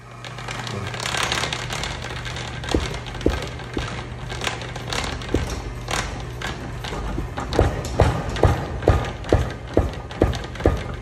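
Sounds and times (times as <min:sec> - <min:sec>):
steady motor hum: 0:00.0 - 0:11.0
power hammer striking wood: 0:02.6 - 0:11.0.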